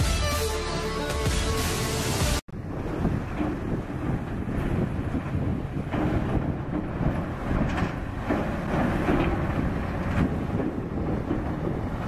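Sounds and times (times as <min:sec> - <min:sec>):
excavator engine rumble: 0:02.5 - 0:12.0
wind buffeting microphone: 0:02.5 - 0:12.0.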